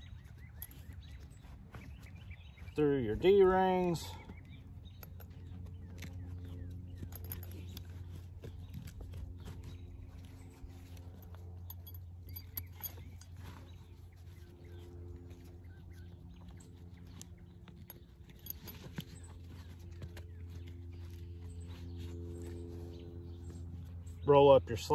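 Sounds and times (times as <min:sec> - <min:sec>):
low hum: 0:04.0 - 0:24.3.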